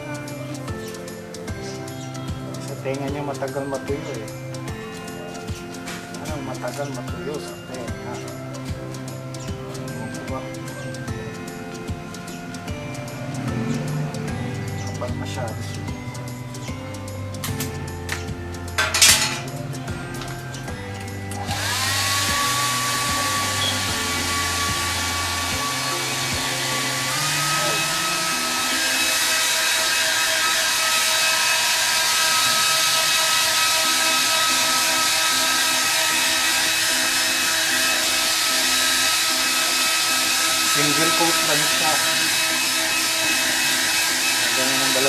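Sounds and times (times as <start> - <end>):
background music: 0.0 - 45.0
hair dryer blowing: 18.8 - 45.0.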